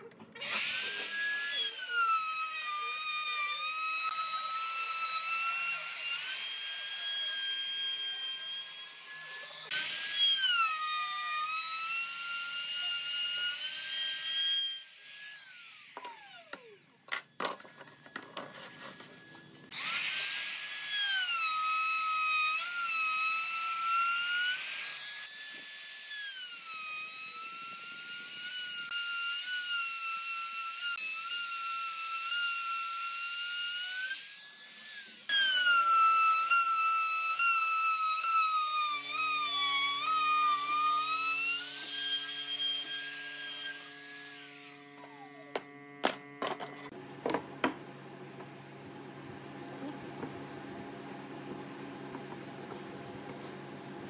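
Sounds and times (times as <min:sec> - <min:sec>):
router whining while cutting wood: 0:00.1 - 0:47.7
router spinning down: 0:11.4 - 0:18.2, 0:18.9 - 0:25.5, 0:32.9 - 0:47.0.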